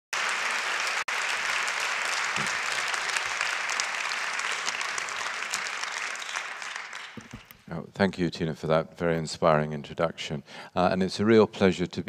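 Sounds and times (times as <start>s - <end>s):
audience applauding: 0.1s - 7.6s.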